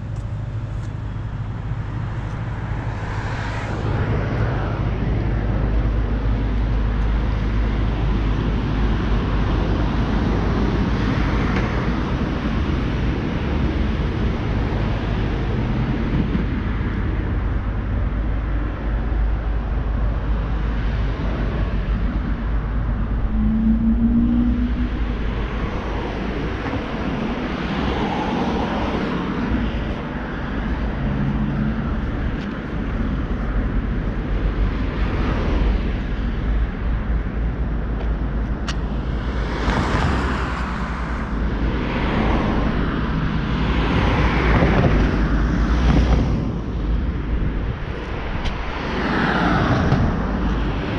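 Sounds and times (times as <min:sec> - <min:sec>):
cars passing: 0:00.0 - 0:50.9
low traffic rumble: 0:00.0 - 0:50.9.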